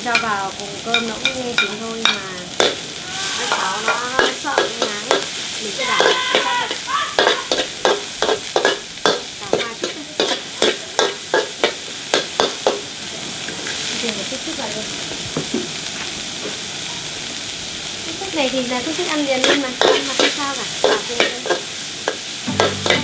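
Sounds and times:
vegetables sizzling: 0:00.0 - 0:23.0
metal ladle scraping a wok: 0:07.2 - 0:12.6, 0:19.4 - 0:23.0.

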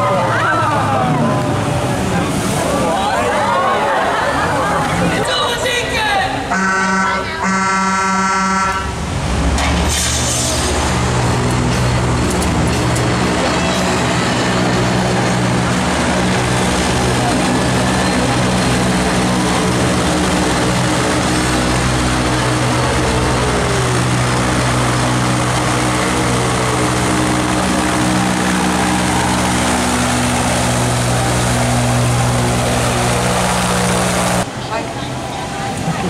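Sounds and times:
engine running loudly: 0:08.8 - 0:34.5
rushing noise: 0:08.8 - 0:34.6.

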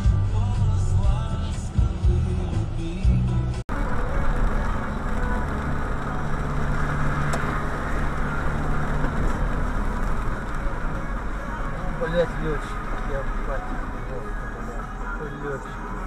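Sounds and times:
car engine hum: 0:00.0 - 0:16.0
tyres hissing on wet road: 0:03.7 - 0:16.0.

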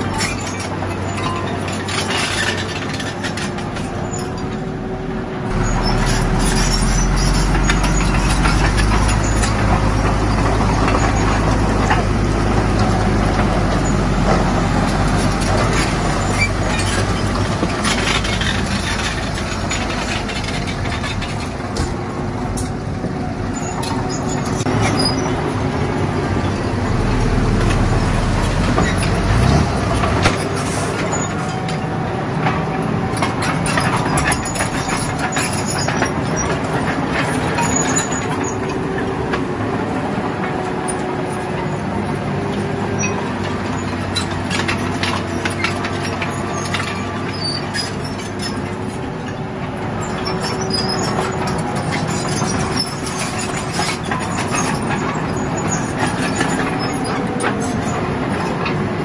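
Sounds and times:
diesel engines under load: 0:00.0 - 0:59.0
metal clanks: 0:05.5 - 0:25.5, 0:33.2 - 0:39.4.

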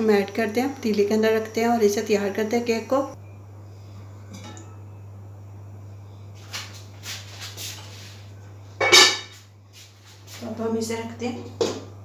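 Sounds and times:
steady low hum: 0:00.0 - 0:12.0
metal pot scraping and clattering: 0:08.8 - 0:09.3.

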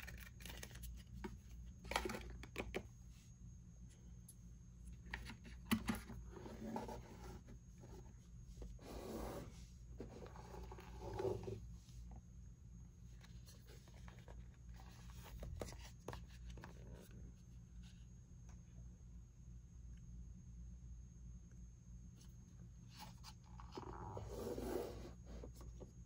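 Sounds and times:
hands handling phone packaging: 0:00.0 - 0:02.9.

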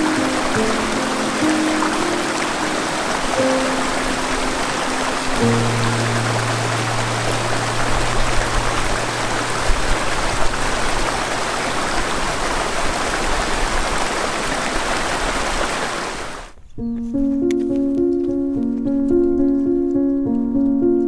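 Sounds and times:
stream splashing over boulders: 0:00.0 - 0:16.5.

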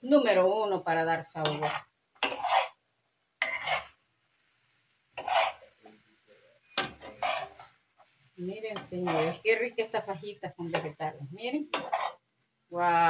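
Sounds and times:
spatula scraping frying pan: 0:01.4 - 0:02.8, 0:03.4 - 0:04.1, 0:05.1 - 0:05.8, 0:06.6 - 0:12.3.

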